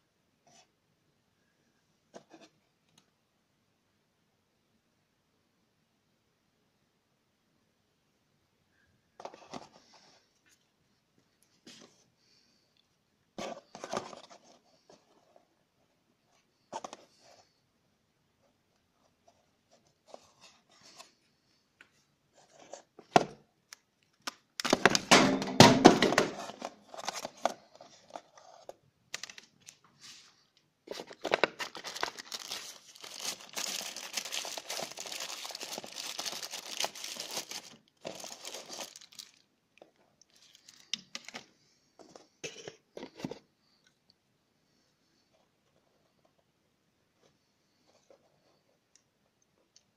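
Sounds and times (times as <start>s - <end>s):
plastic wrapping crinkling: 30.9s - 39.5s, 40.2s - 41.5s.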